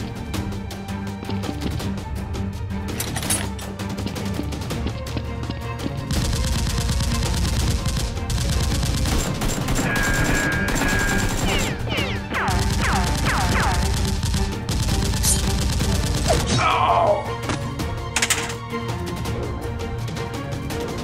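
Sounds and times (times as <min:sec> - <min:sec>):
background music: 0:00.0 - 0:21.0
automatic gunfire: 0:06.1 - 0:11.8, 0:12.4 - 0:16.5.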